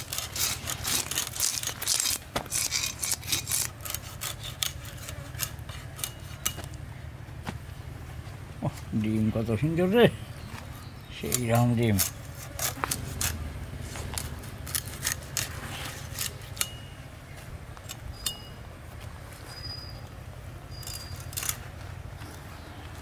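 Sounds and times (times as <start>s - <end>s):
blade cutting fish: 0.0s - 6.4s.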